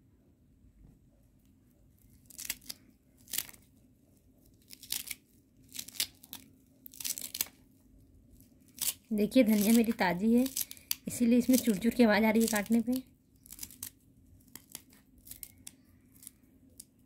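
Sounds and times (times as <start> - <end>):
knife crunching through coriander: 2.1 - 3.7, 4.4 - 7.6, 8.4 - 17.0.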